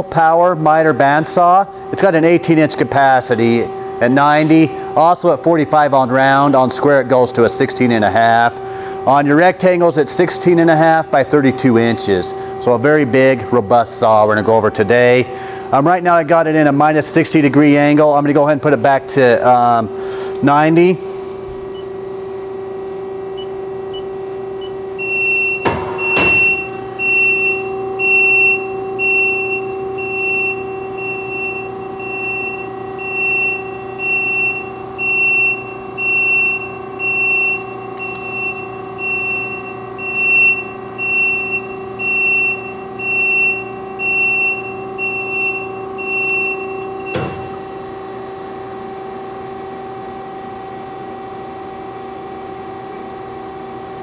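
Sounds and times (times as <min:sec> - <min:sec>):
band saw machinery humming: 0:00.0 - 0:54.0
high warning beeper: 0:23.2 - 0:48.0.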